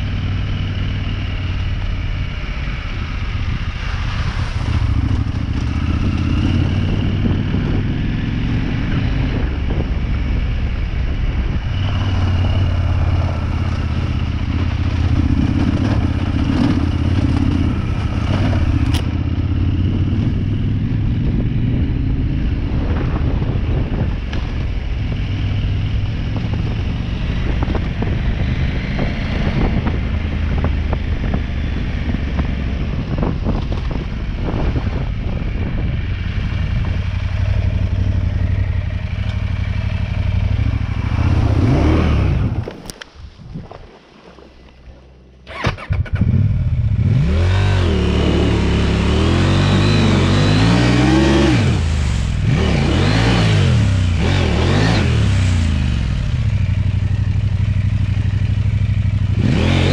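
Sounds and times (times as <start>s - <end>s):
motorcycle engine running: 0.0s - 43.8s, 44.8s - 59.9s
motorcycle knocks and rattles: 11.9s - 20.6s, 29.0s - 41.0s.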